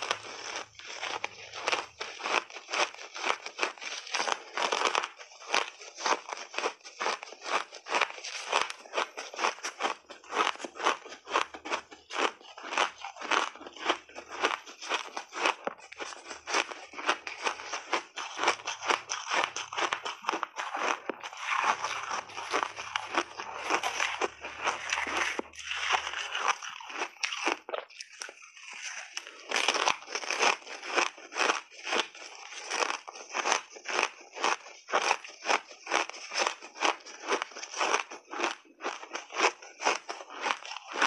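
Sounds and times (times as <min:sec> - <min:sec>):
chewing ice: 0:00.0 - 0:41.0
ice crunching and crackling: 0:00.0 - 0:41.0.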